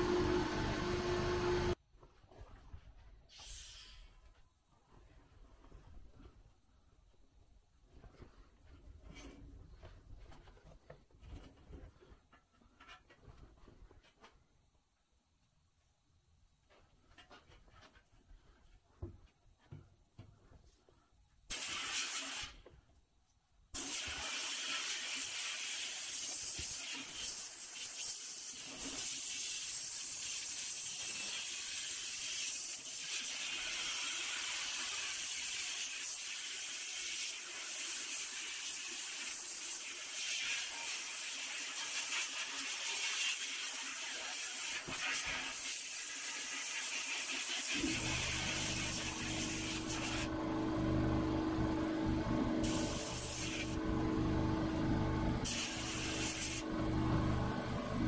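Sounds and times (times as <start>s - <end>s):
sandblast gun hissing: 47.3s - 50.3s, 52.6s - 53.8s, 55.4s - 56.7s.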